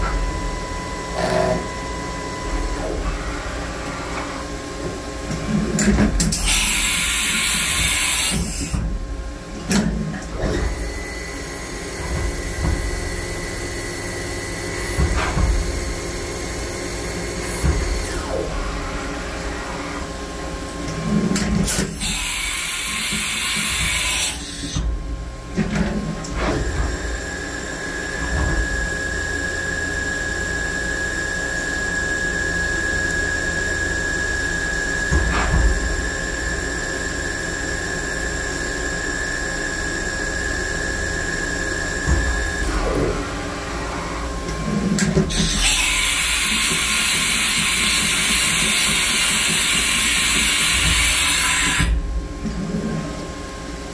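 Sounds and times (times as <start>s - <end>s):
milling machine spindle whine: 26.5s - 53.8s.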